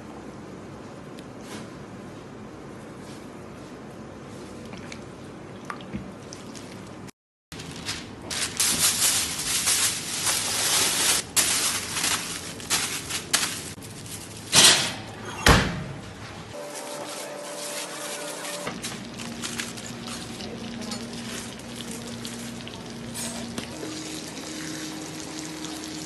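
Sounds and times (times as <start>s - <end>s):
aluminium foil crinkling: 7.6s - 14.6s, 16.6s - 23.3s.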